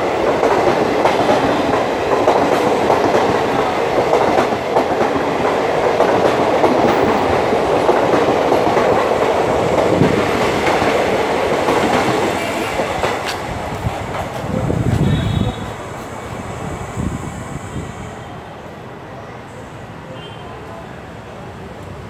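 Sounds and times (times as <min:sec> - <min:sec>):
train wheels clattering on rails: 0:00.0 - 0:16.3.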